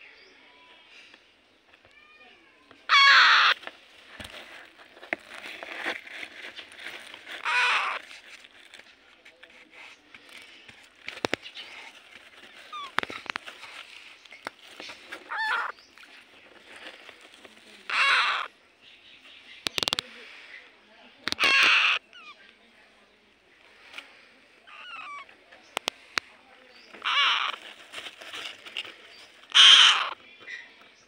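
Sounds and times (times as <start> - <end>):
parakeet chicks calling loudly: 2.9 - 3.6, 6.5 - 8.2, 9.9 - 18.6, 21.3 - 22.4, 24.6 - 28.0, 29.1 - 31.0
soft chirps and clicks: 10.0 - 17.6, 19.2 - 20.2, 25.1 - 26.3.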